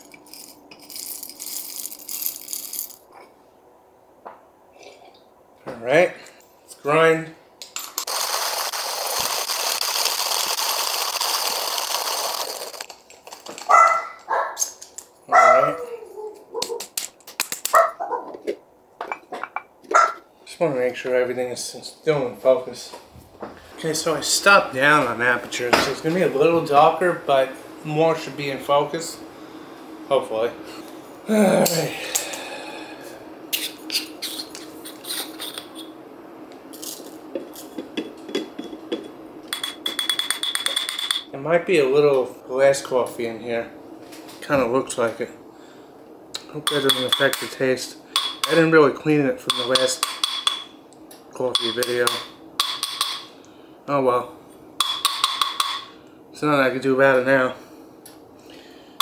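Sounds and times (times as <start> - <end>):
hand coffee grinder crunching beans: 0.0 - 3.0, 8.0 - 14.8
faint steady hum: 0.0 - 59.0
dog barking and whining: 13.7 - 14.6, 15.3 - 16.9, 17.7 - 18.4, 19.9 - 20.2.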